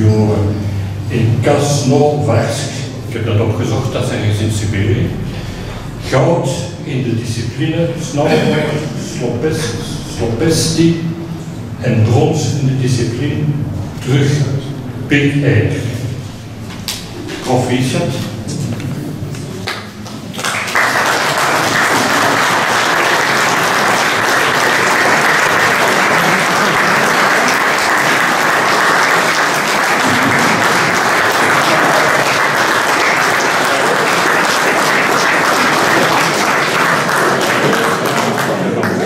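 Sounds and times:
audience applauding: 19.3 - 39.0.

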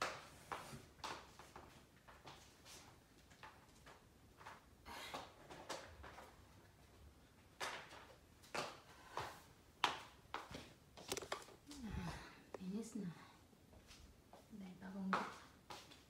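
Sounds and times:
household items knocking and rustling: 10.5 - 12.1.

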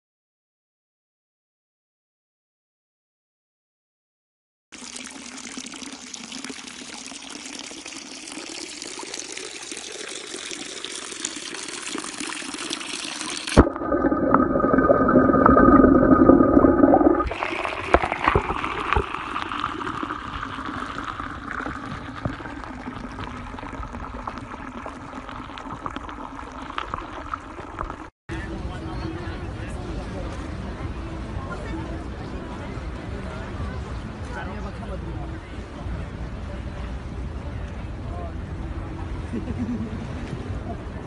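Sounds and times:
water gushing from a pipe: 4.8 - 28.1
water splashing into a channel: 4.8 - 28.1.

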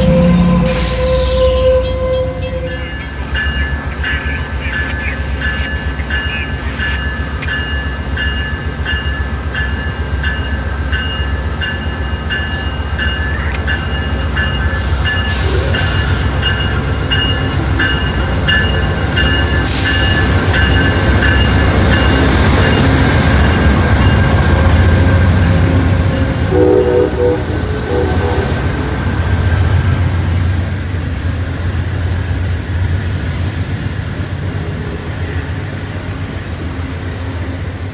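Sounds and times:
locomotive bell ringing: 0.0 - 28.0.

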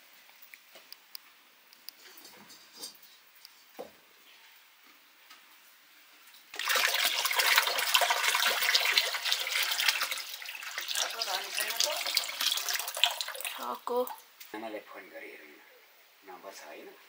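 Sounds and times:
water pouring: 6.5 - 14.2.

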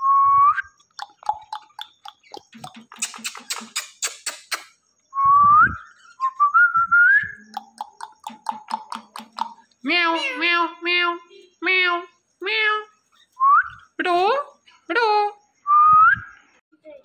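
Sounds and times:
parrot clicking: 1.0 - 4.7, 7.4 - 9.8.

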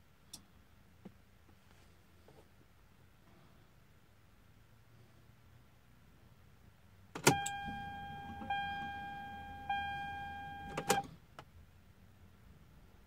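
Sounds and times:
ignition key click: 7.2 - 11.1
dash warning chime: 7.3 - 11.0.

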